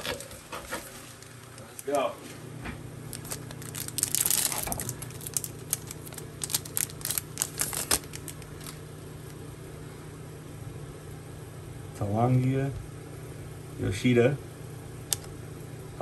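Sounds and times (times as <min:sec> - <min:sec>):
low steady hum: 0:00.0 - 0:16.0
foil pack tearing and crinkling: 0:03.1 - 0:08.8.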